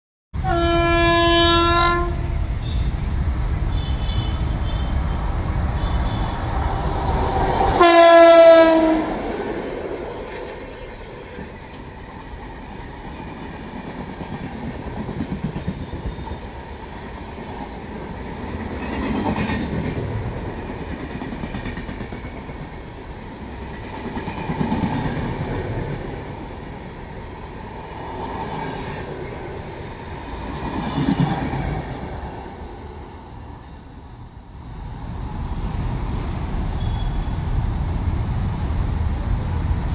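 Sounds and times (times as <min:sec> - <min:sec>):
train horn blasts: 0:00.4 - 0:02.9, 0:03.7 - 0:05.1, 0:05.8 - 0:06.5, 0:07.7 - 0:09.3
train coaches rumbling and clattering: 0:00.4 - 0:39.9.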